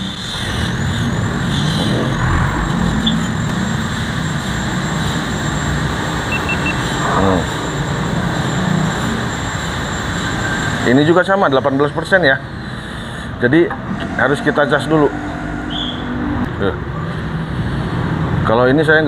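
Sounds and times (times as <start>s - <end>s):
road traffic rumble: 0.0s - 19.0s
quick high beeps: 6.3s - 6.9s.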